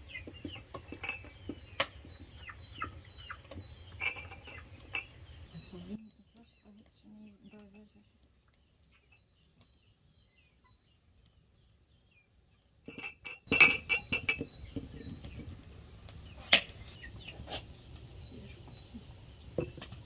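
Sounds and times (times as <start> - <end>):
glassware clinking: 0.9 - 1.4, 4.0 - 5.1, 12.9 - 14.5.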